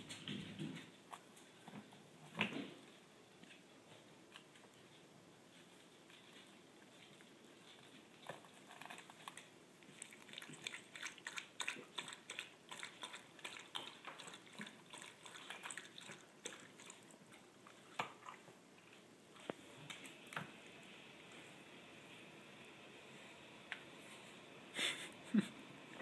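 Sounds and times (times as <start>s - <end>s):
cat chewing on a sandal: 3.4s - 20.4s.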